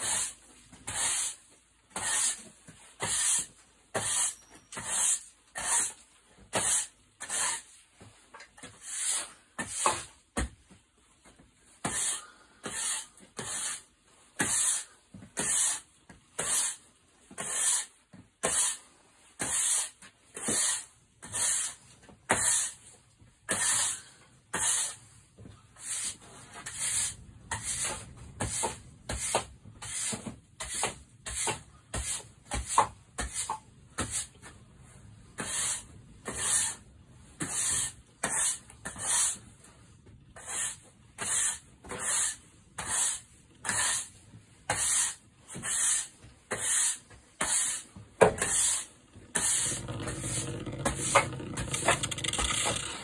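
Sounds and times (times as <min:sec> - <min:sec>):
wooden top spinning on cardboard: 0:04.0 - 0:05.2, 0:49.3 - 0:53.0.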